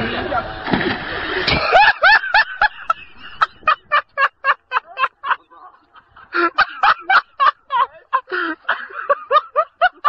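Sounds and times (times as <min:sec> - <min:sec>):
person laughing hard: 0:01.5 - 0:10.0.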